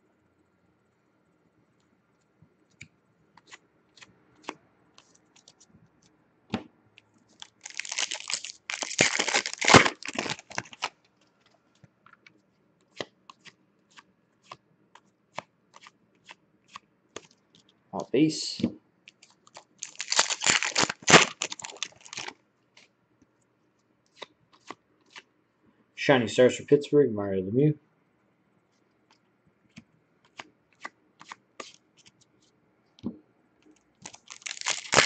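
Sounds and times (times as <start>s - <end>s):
wrapper tearing and crinkling: 7.4s - 11.0s, 19.5s - 22.4s, 34.0s - 35.0s.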